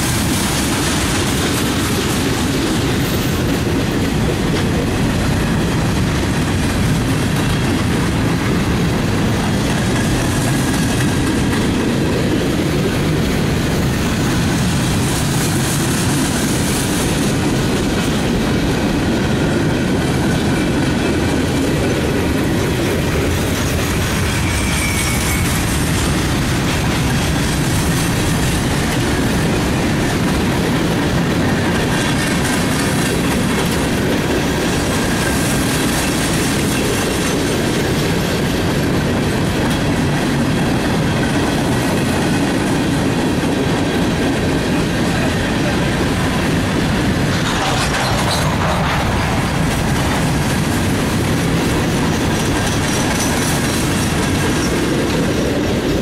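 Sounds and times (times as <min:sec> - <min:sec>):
freight train wheels rolling: 0:00.0 - 0:56.0
faint wheel squeal: 0:24.4 - 0:25.6.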